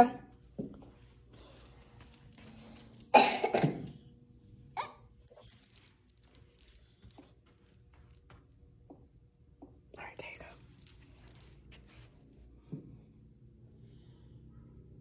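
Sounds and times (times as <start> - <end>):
person coughing: 3.1 - 3.9.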